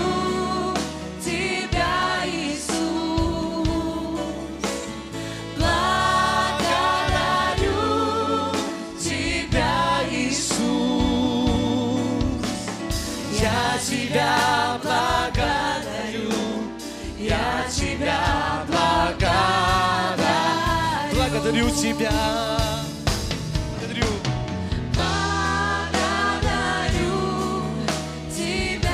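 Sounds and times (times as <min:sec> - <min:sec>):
people singing slow melody: 0:00.0 - 0:23.3, 0:24.8 - 0:28.9
band with bass: 0:00.0 - 0:28.9.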